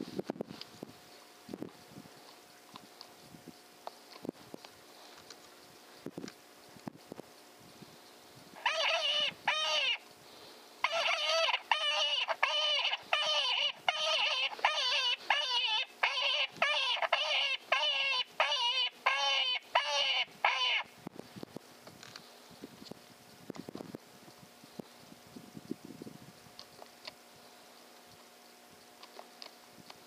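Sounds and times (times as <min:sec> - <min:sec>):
electronic animal cry: 0:08.6 - 0:10.0, 0:10.8 - 0:21.0.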